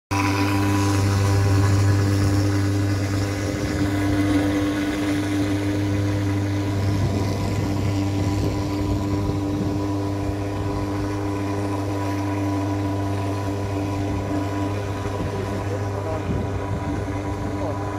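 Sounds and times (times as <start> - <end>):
fogging machine droning: 0.1 - 17.9.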